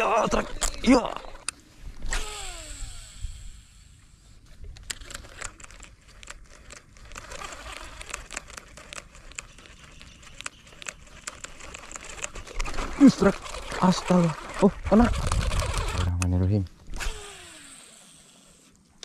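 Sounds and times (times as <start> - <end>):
fishing reel clicks: 1.4 - 4.1, 4.8 - 12.8, 16.9 - 18.6
rustling: 4.2 - 19.0.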